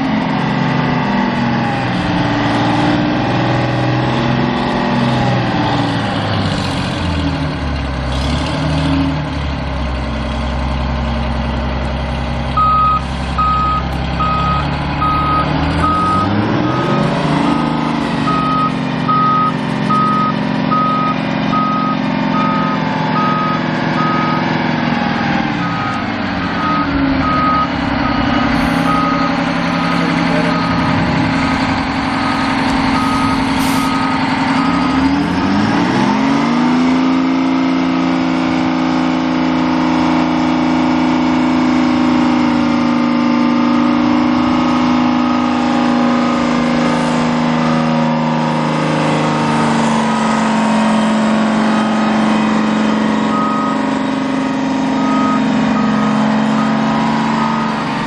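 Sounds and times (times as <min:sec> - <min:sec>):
diesel truck engine revving: 0:00.0 - 0:58.0
back-up alarm beeping: 0:12.6 - 0:17.2, 0:18.2 - 0:24.4, 0:25.6 - 0:35.2, 0:53.3 - 0:53.9, 0:55.0 - 0:57.7.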